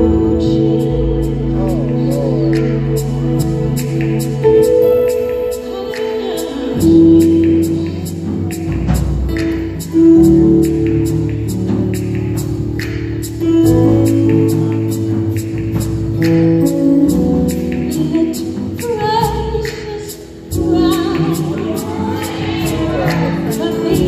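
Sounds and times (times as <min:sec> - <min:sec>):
singers holding long notes: 0:00.0 - 0:10.2, 0:20.5 - 0:24.0
keyboard: 0:00.0 - 0:24.0.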